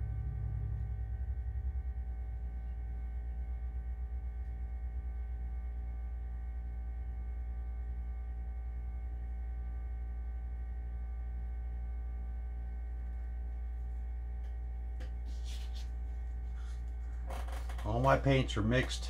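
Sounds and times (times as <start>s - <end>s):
appliance hum with high tones: 0.0s - 19.0s.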